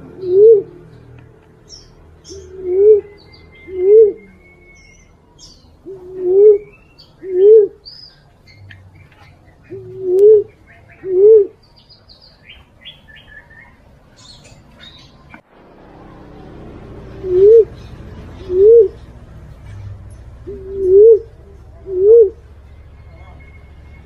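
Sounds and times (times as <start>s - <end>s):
dove low hoots: 0.0s - 0.9s, 2.3s - 4.9s, 5.8s - 7.8s, 9.6s - 11.6s, 16.1s - 19.1s, 20.4s - 22.5s
small birds chirping: 0.0s - 24.0s.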